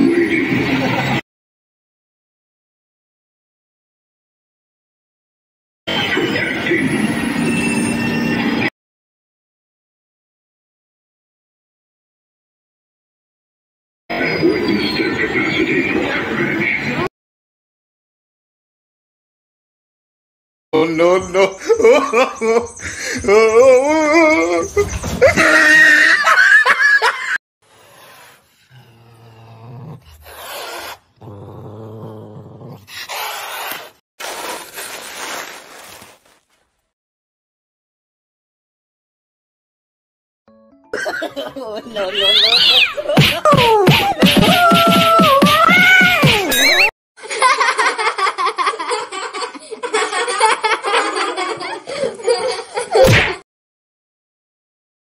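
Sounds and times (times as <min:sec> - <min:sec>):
person laughing: 0:20.8 - 0:27.4, 0:41.0 - 0:45.4
caracal snarling and hissing: 0:27.6 - 0:34.6
low growling: 0:27.7 - 0:33.2
wavering voice-like sound: 0:42.0 - 0:46.9.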